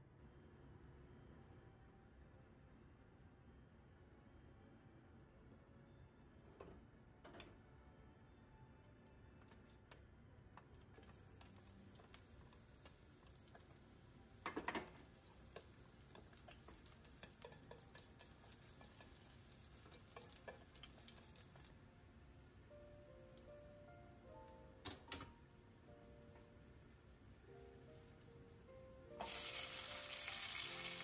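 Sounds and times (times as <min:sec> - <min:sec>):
garlic sizzling in oil: 0:11.1 - 0:21.7, 0:29.2 - 0:31.0
chopsticks tapping: 0:14.5 - 0:21.7.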